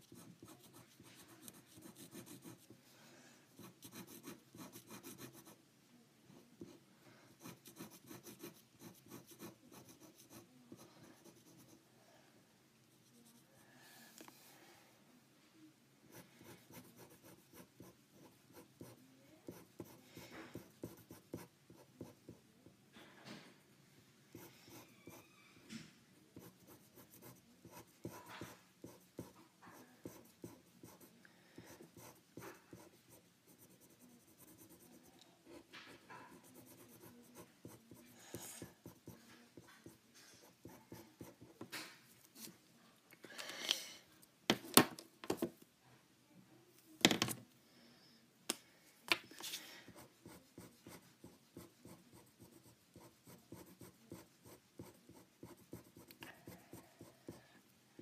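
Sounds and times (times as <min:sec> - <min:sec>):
marker scratching on paper: 0:00.0 - 0:02.8, 0:03.6 - 0:05.6, 0:07.4 - 0:11.8, 0:16.1 - 0:22.4, 0:26.3 - 0:41.7, 0:49.4 - 0:57.4.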